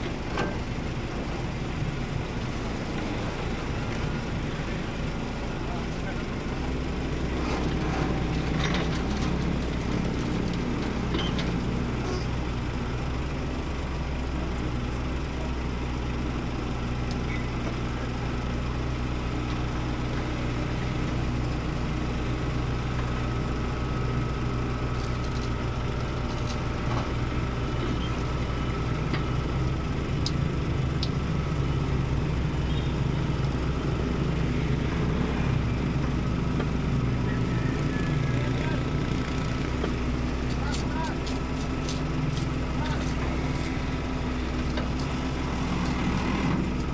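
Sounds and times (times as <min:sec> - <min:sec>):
excavator diesel engine running: 0:00.0 - 0:46.9.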